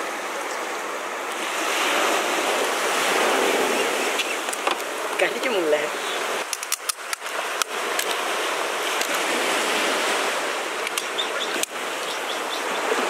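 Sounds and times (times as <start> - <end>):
sea surf on beach: 0.0 - 13.0
crab shell cracking: 6.4 - 8.2.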